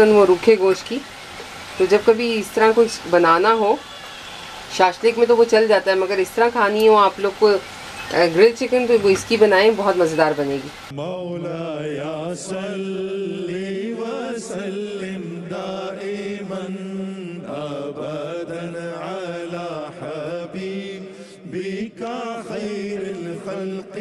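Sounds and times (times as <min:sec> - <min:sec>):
steady drone: 0:00.0 - 0:10.9.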